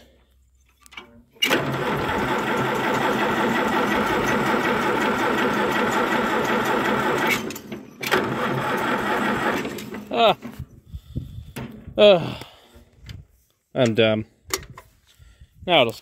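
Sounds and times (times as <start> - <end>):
starter cranking engine: 1.4 - 10.2.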